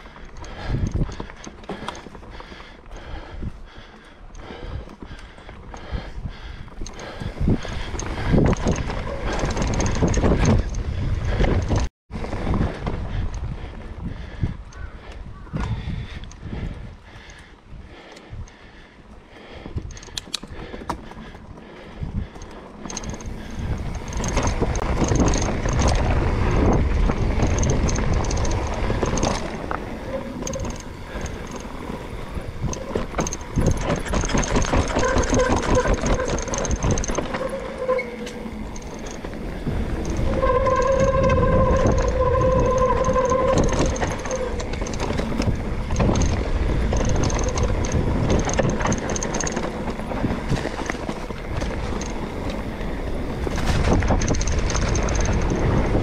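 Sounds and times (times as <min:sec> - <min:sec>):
bike rattling over bumps: 0:00.0 - 0:56.0
wind rumbling on microphone: 0:00.0 - 0:56.0
tyres rolling over dirt and leaves: 0:20.8 - 0:56.0.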